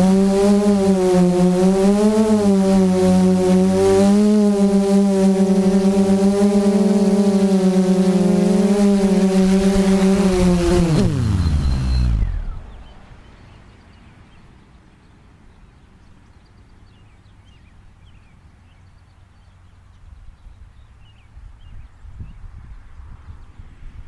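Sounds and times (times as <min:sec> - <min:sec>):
quadcopter motors spinning down: 0:00.0 - 0:13.2
bird chirps: 0:09.8 - 0:22.4.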